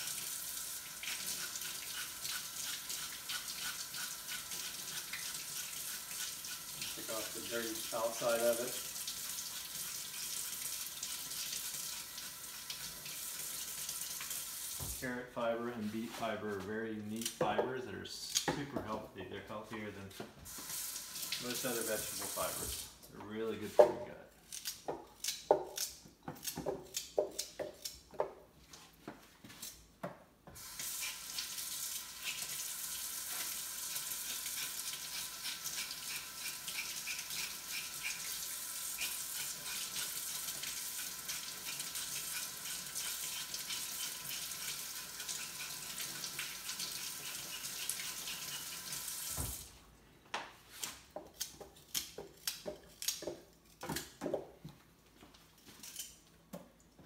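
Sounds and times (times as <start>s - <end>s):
kitchen tap running: 0.0s - 15.0s, 20.5s - 23.0s, 30.5s - 49.7s.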